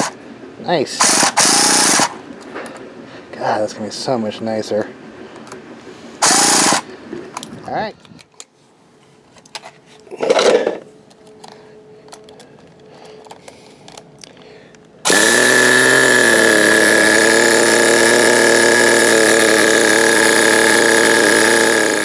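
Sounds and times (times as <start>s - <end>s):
small engine idling: 0.0s - 0.2s, 1.0s - 2.2s, 6.2s - 7.0s, 15.0s - 22.0s.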